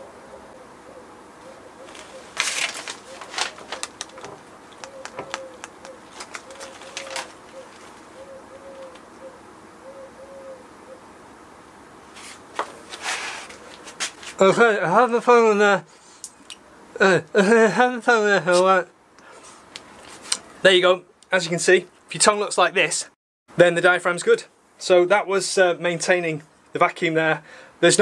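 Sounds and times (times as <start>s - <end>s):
faint wavering hum: 0.0s - 13.9s
rustling: 1.5s - 9.2s, 12.1s - 14.4s, 19.3s - 20.5s.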